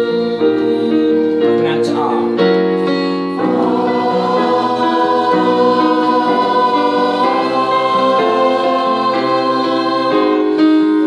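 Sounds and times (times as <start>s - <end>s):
choir singing warm-up: 0.0s - 2.2s, 2.8s - 11.0s
digital piano: 0.0s - 11.0s.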